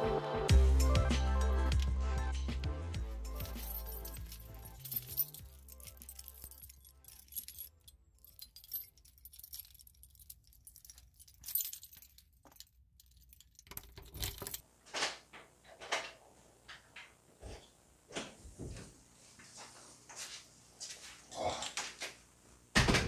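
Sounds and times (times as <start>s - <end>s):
keys jangling: 3.2s - 14.6s.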